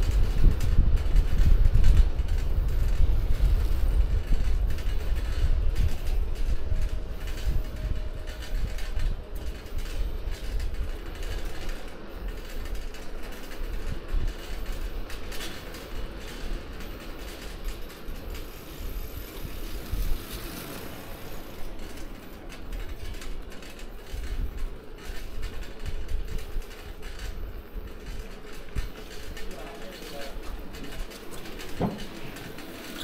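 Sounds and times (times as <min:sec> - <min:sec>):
wind on microphone: 0:00.0 - 0:12.1, 0:17.6 - 0:21.9
bicycle and basket rattling: 0:00.0 - 0:33.0
tyres rumbling: 0:02.6 - 0:33.0.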